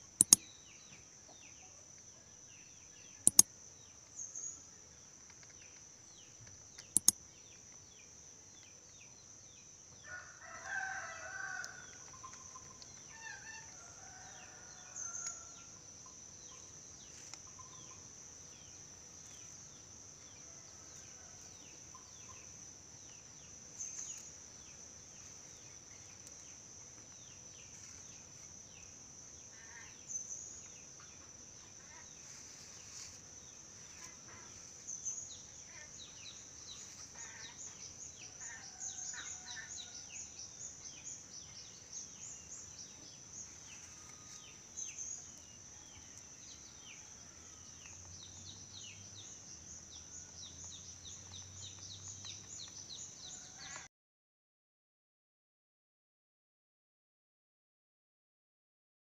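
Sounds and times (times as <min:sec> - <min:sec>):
bird chirps: 0:00.0 - 0:01.0, 0:03.0 - 0:03.5, 0:06.8 - 0:07.2.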